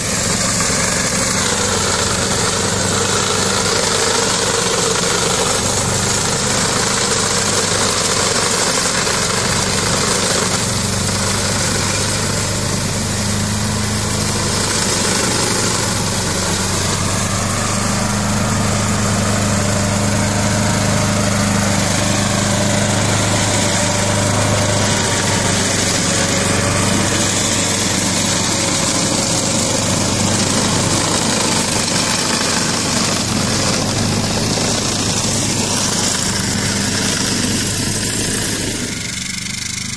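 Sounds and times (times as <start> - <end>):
rotary brush cutter mowing: 0.0 - 39.9
tractor diesel engine under load: 0.0 - 39.9.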